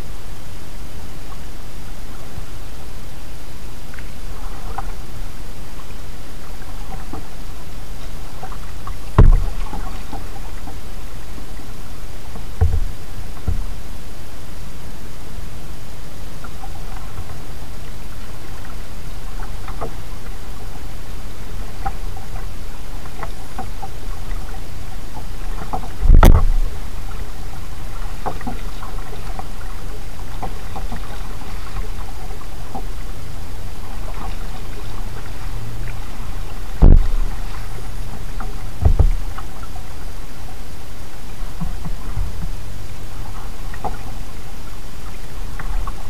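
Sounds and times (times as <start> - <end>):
paddle drips and splashes: 3.6 - 14.2, 16.4 - 46.0
heavy thumps against kayak: 9.2 - 9.9, 12.6 - 13.7, 25.6 - 26.7, 36.8 - 37.6, 38.4 - 39.3.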